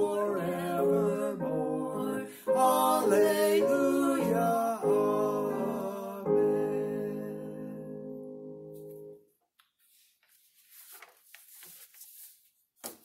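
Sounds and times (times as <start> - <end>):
two voices singing: 0.0 - 8.8
sheet music rustling: 8.7 - 13.0.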